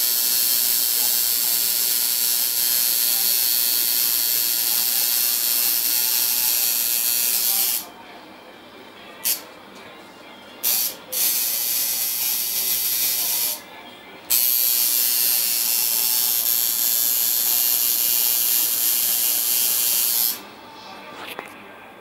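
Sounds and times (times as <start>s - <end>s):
tattoo machine buzzing: 0.0s - 7.9s, 9.2s - 9.4s, 10.6s - 13.6s, 14.3s - 20.4s.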